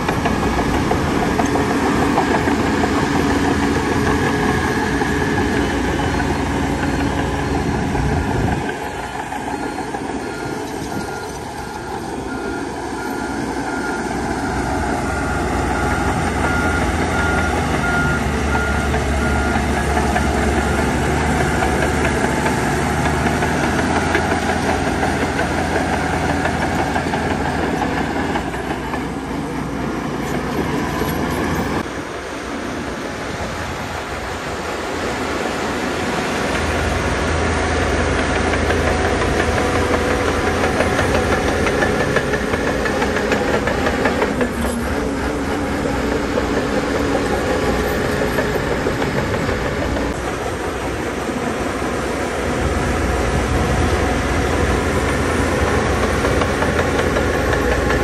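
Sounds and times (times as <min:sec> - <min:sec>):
diesel machinery engine: 0:00.0 - 0:58.0
reversing alarm beeps: 0:01.3 - 0:22.3.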